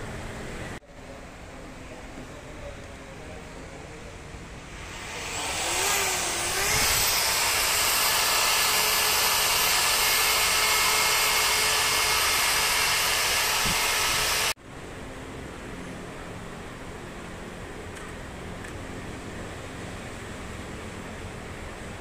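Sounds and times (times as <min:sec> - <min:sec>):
electric blower motor whining: 0:04.7 - 0:14.6.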